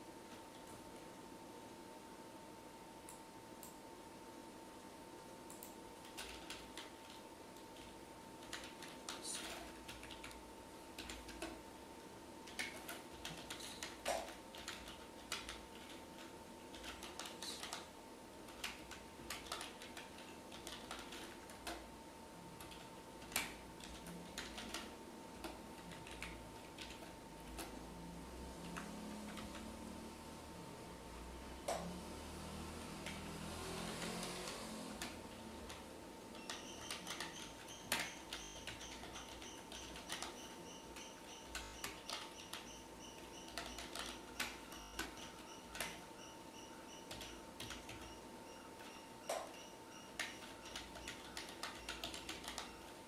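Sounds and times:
faint steady hum: 0.0s - 53.0s.

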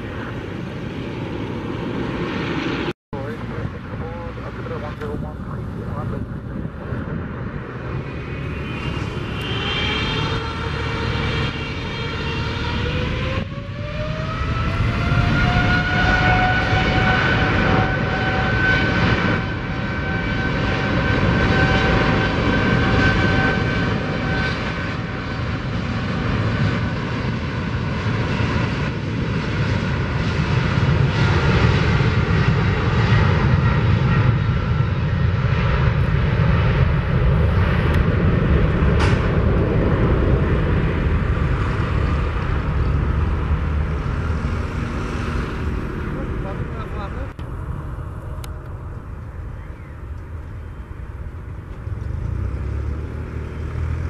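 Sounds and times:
heavy jet rumble: 0.0s - 54.0s
jet engine whine: 0.0s - 54.0s.

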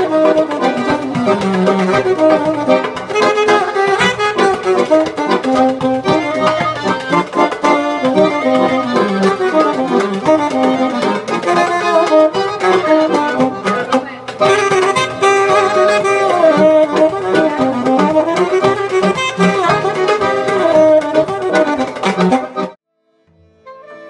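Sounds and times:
hand drum beat: 0.0s - 22.8s
saxophone: 0.0s - 22.8s, 23.4s - 24.0s
accordion: 0.0s - 24.0s.

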